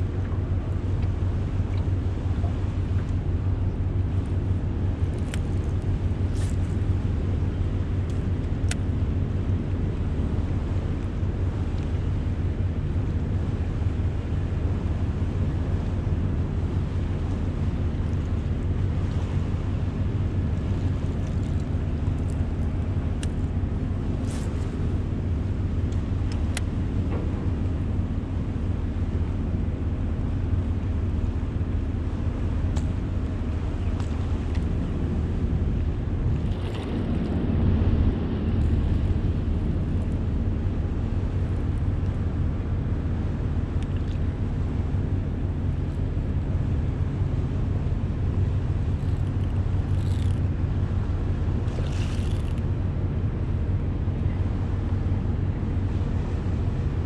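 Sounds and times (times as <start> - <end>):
faint ticks: 48.9 - 50.5.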